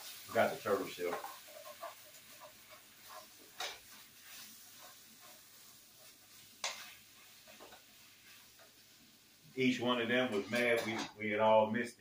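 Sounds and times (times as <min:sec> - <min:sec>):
spoon stirring pasta in pot: 0:01.0 - 0:08.8.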